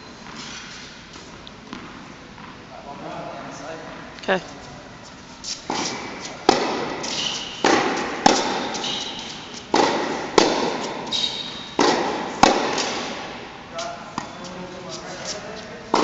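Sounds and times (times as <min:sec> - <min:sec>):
tennis balls bouncing on hard court: 0:01.2 - 0:02.6, 0:05.6 - 0:13.4
tennis balls struck by racquets: 0:01.7 - 0:02.6, 0:05.6 - 0:13.5.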